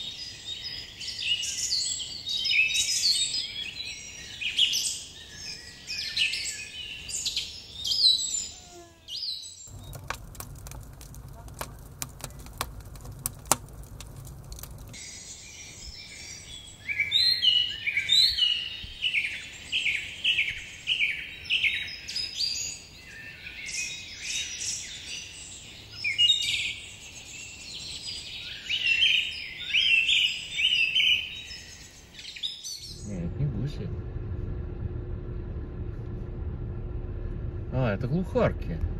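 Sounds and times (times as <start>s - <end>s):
birds chirping: 0.0s - 33.9s
campfire crackling and popping: 9.7s - 15.0s.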